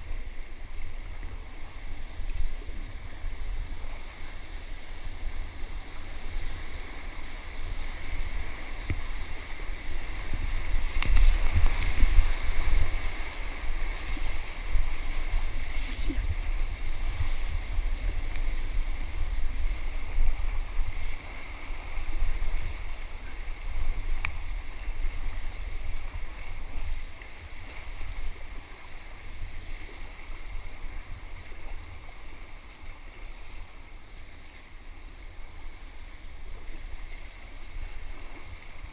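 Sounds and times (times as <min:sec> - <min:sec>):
whitewater rushing and splashing: 0:00.0 - 0:38.9.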